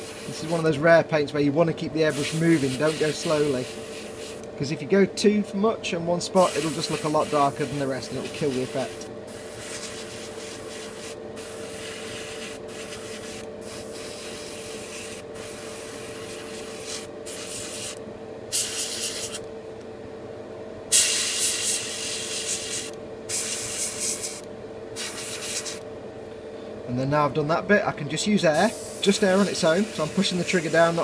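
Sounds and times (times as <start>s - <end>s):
airbrush spraying hiss: 0.0s - 0.7s, 2.1s - 4.5s, 6.4s - 19.4s, 20.9s - 25.8s, 28.6s - 31.0s
steady hum: 0.0s - 31.0s.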